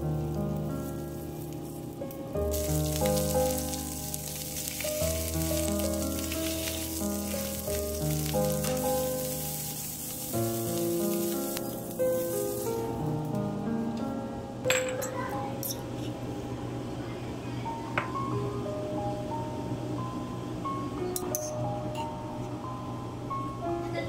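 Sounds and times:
shrimp sizzling in oil: 0.0 - 13.1
background music: 0.0 - 14.7.

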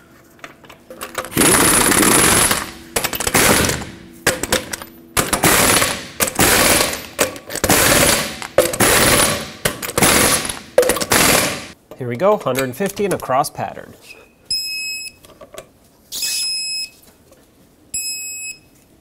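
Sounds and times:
impact gun hammering: 1.2 - 11.8.

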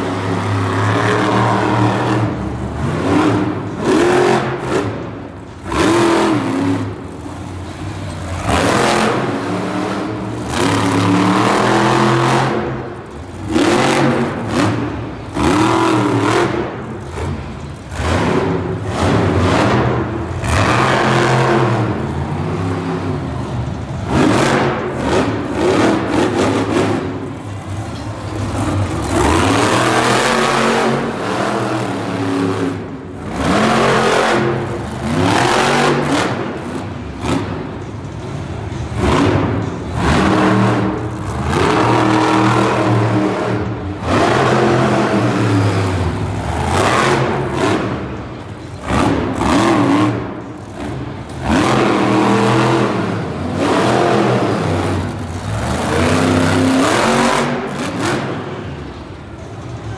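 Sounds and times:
monster truck engine revving hard: 0.0 - 59.9.

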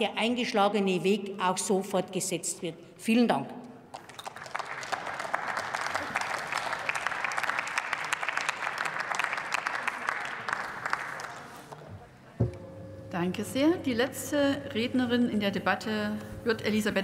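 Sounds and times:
audience clapping: 3.9 - 12.2.

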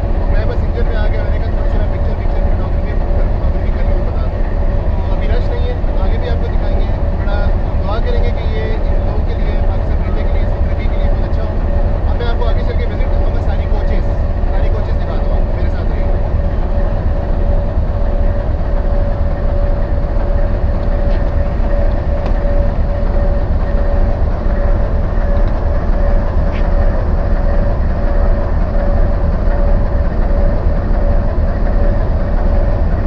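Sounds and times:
constant whine: 0.0 - 33.0
locomotive engine idling: 0.0 - 33.0.

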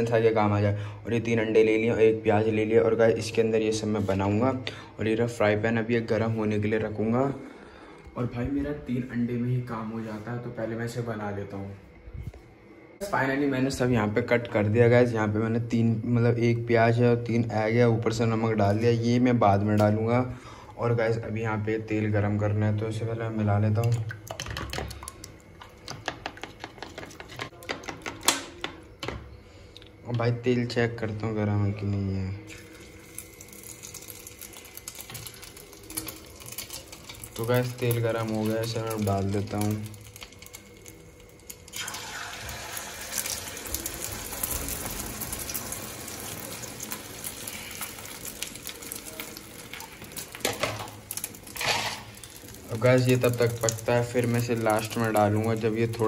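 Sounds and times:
egg mixture sizzling in hot oil: 23.9 - 29.2, 32.5 - 56.0.

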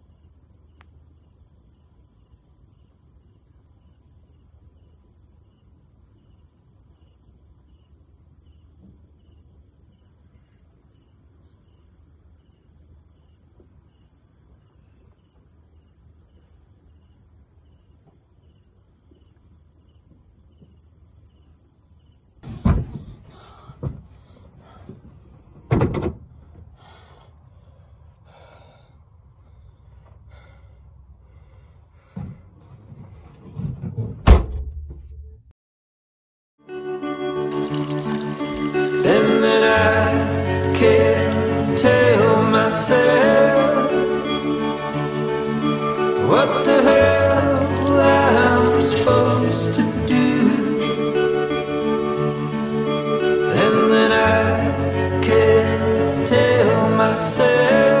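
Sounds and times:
crickets trilling: 0.0 - 32.6, 37.0 - 58.0
heavy thuds at car boot: 22.4 - 24.1.

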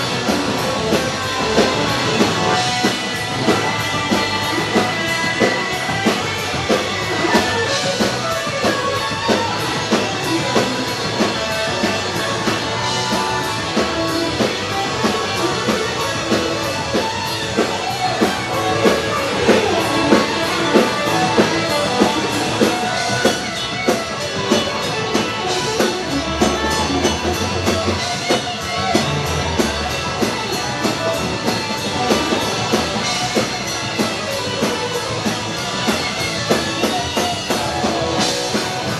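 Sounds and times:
bass guitar: 0.0 - 38.9
drum kit beat: 0.0 - 38.9
electric guitars: 0.0 - 38.9.

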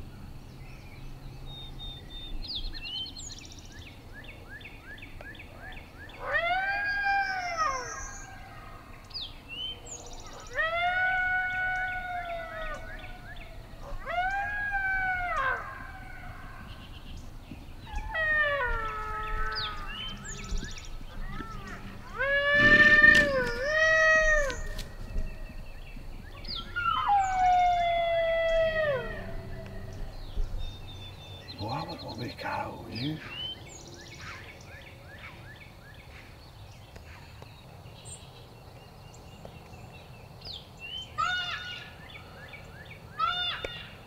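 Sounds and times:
recorded coyote howls: 5.6 - 8.9, 10.2 - 17.0, 17.8 - 25.3, 26.3 - 30.8.

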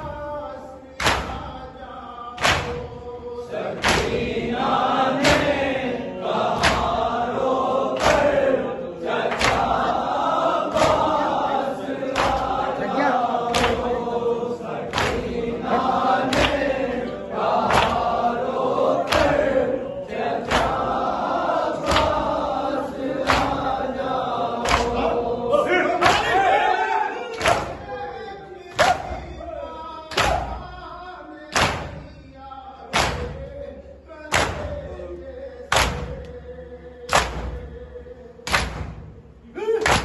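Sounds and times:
men chanting in unison: 0.0 - 40.0
hands slapping chests: 1.0 - 1.6, 2.4 - 3.0, 3.7 - 4.4, 5.1 - 5.8, 6.4 - 8.6, 9.2 - 14.0, 14.8 - 16.8, 17.5 - 18.2, 18.8 - 19.6, 20.4 - 22.4, 23.1 - 23.8, 24.6 - 25.0, 26.0 - 26.4, 27.3 - 27.8, 30.1 - 30.6, 31.5 - 32.0, 32.9 - 33.4, 34.3 - 34.8, 35.7 - 36.4, 37.1 - 37.7, 38.4 - 39.1, 39.8 - 40.0.

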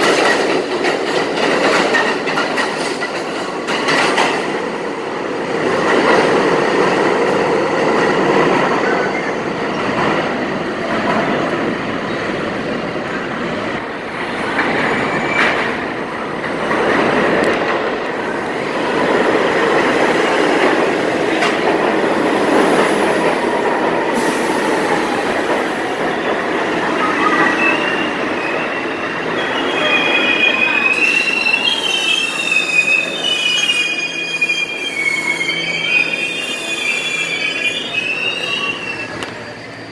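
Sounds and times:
subway train rumble and rattle: 0.0 - 39.9
high-pitched wheel squeal: 27.0 - 39.9.

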